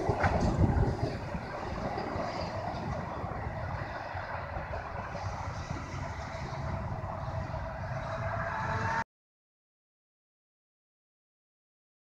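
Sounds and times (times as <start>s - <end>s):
electric train rumble and hiss: 0.0s - 9.0s.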